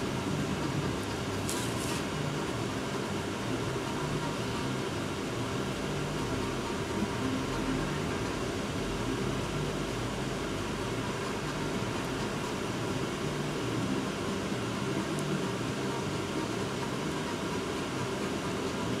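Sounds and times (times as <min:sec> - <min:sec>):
fan hum and hiss: 0:00.0 - 0:19.0
soft hiss: 0:00.0 - 0:19.0.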